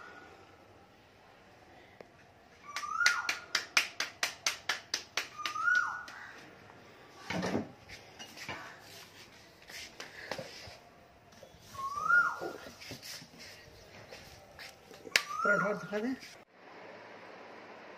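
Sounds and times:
falling whistled call: 0:02.6 - 0:03.4, 0:05.3 - 0:06.1, 0:11.6 - 0:12.7, 0:15.2 - 0:15.9
hands slapping dough: 0:02.7 - 0:06.2.

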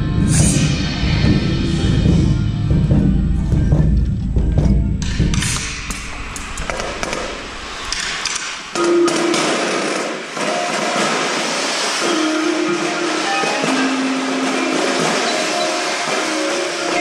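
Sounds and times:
bass drum rumble: 0:00.0 - 0:07.9
cymbals and metal percussion: 0:00.0 - 0:17.0.

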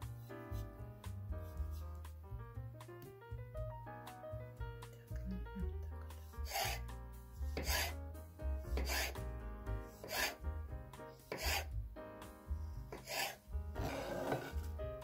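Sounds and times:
knife slicing tomato on wooden board: 0:01.4 - 0:02.1, 0:06.2 - 0:08.0, 0:08.7 - 0:09.2, 0:10.0 - 0:10.4, 0:11.2 - 0:11.7, 0:12.9 - 0:14.8.

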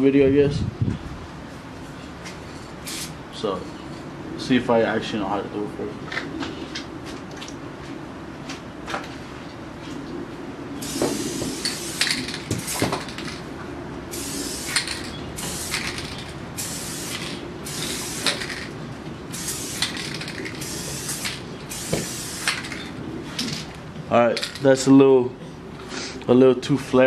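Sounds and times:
spray paint can hissing: 0:02.8 - 0:03.2, 0:10.8 - 0:13.3, 0:14.1 - 0:18.7, 0:19.3 - 0:23.0.

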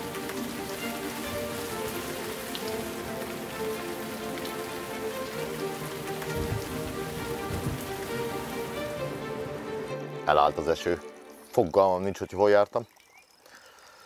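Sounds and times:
soft background music: 0:00.0 - 0:12.8
steady rain falling: 0:00.0 - 0:14.0
low thumps: 0:06.3 - 0:08.0.

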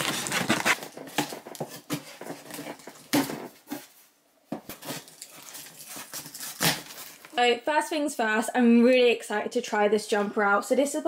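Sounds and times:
cardboard packaging rustling: 0:00.0 - 0:07.4.

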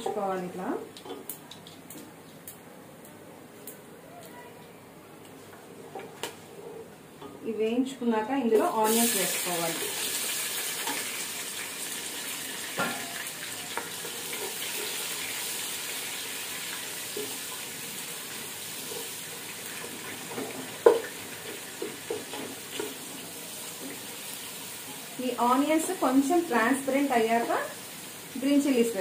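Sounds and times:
onions sizzling in oil: 0:08.5 - 0:29.0.

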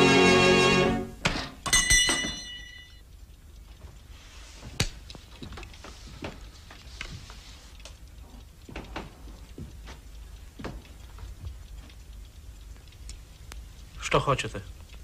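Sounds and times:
spring door bell ringing: 0:01.6 - 0:03.0
light clicks and knocks: 0:03.5 - 0:13.9.

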